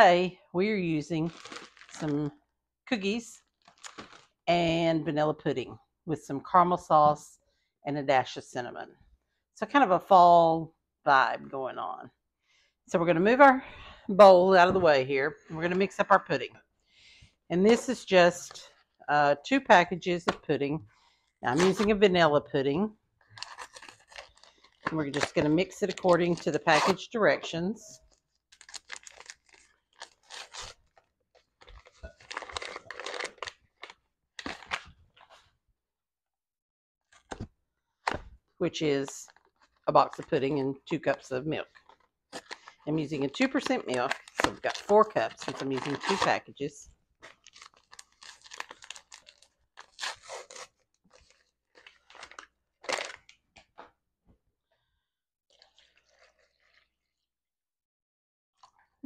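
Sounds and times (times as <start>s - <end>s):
packets torn and crinkled: 1.3s - 2.1s, 3.5s - 4.4s, 23.2s - 27.0s, 28.0s - 35.5s, 39.2s - 40.2s, 41.7s - 42.8s, 43.6s - 46.4s, 47.2s - 53.5s, 55.5s - 56.9s.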